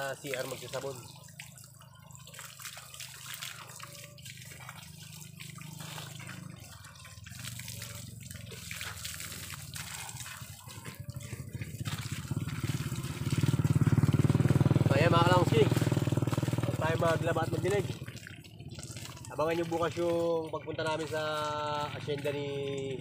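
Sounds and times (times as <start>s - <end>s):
water splashing from garden hose: 0.0s - 23.0s
low engine: 10.4s - 21.1s.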